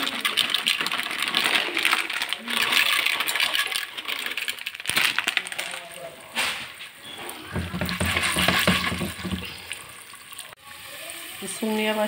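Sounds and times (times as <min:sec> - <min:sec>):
popcorn kernels rattling into pot: 0:00.0 - 0:06.2, 0:07.6 - 0:09.6.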